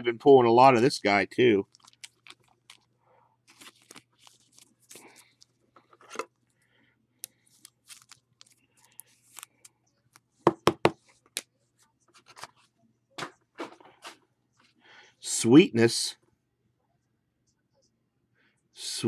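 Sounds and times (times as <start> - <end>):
trading cards rustling: 1.6 - 6.3, 7.2 - 10.3.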